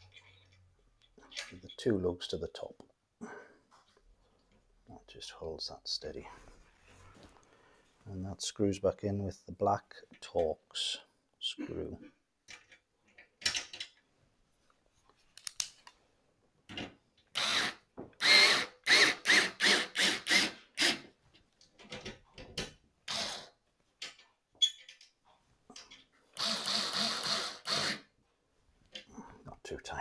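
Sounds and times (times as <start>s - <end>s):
electric screwdriver driving screws: 17.4s - 21.0s, 23.1s - 23.5s, 26.4s - 28.0s.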